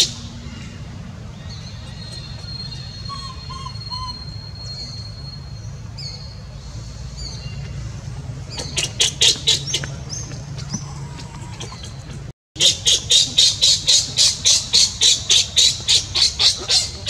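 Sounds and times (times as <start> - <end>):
birds chirping: 0.0 - 17.0
shrill high-pitched bird calls: 1.9 - 6.4.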